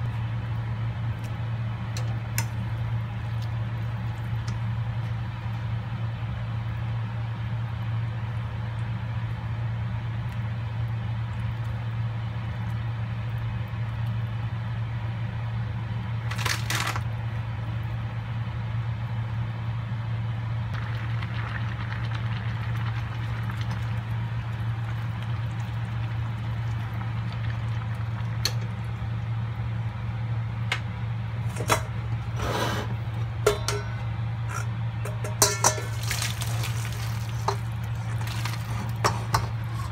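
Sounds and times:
steady low hum: 0.0 - 39.9
pasta boiling hiss: 20.4 - 30.3, 35.6 - 39.9
metal pan clanking: 33.4 - 36.1.

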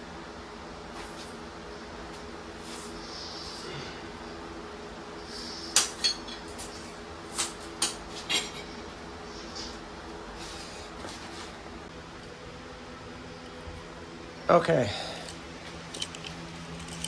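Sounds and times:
metal tools clinking: 15.2 - 17.0.

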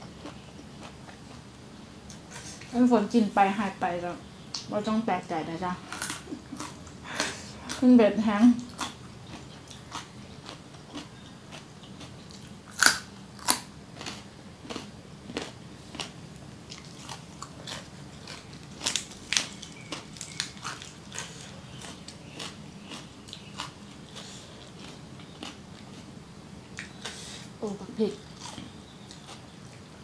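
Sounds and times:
crunching raw vegetables: 8.6 - 26.1.

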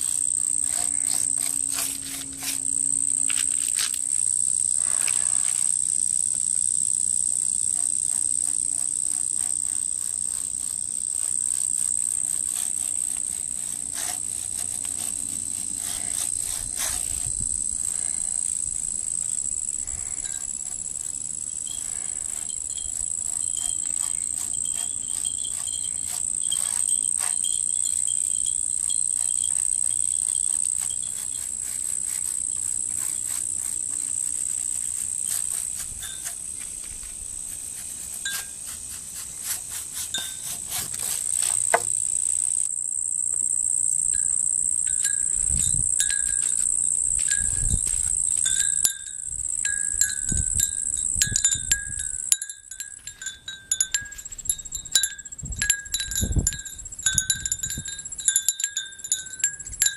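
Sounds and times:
insects chirring: 0.0 - 59.9.

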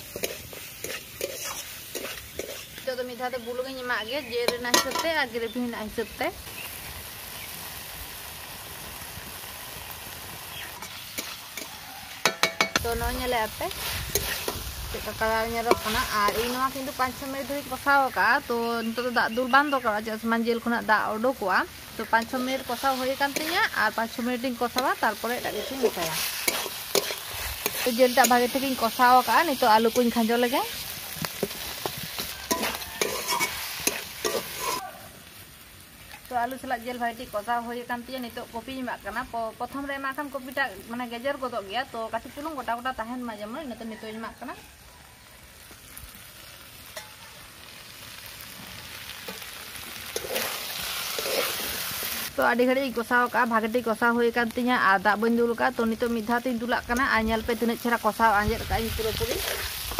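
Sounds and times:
chicken sizzling in a pan: 0.0 - 59.9
spatula clinking on metal: 0.1 - 2.6, 4.5 - 5.2, 10.8 - 12.8, 25.6 - 28.7, 31.4 - 34.8, 50.1 - 50.6
woman talking: 2.8 - 6.4, 12.8 - 13.8, 14.9 - 26.2, 27.8 - 30.8, 36.3 - 44.7, 52.4 - 59.6
spatula clicking on pan: 10.8 - 12.8.

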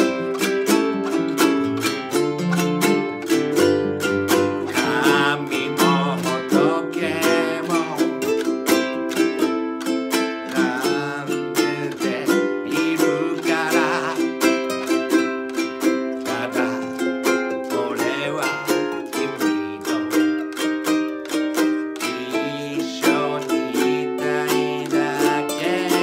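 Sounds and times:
classical guitar: 0.0 - 26.0
ukulele strumming: 0.0 - 26.0
man singing: 3.6 - 9.2, 10.2 - 20.6, 21.5 - 26.0.

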